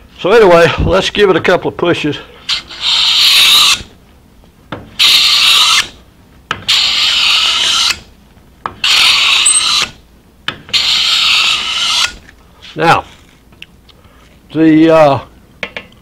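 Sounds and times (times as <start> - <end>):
scraper plane scraping wood: 6.7 - 8.0, 8.8 - 10.0, 10.7 - 13.3.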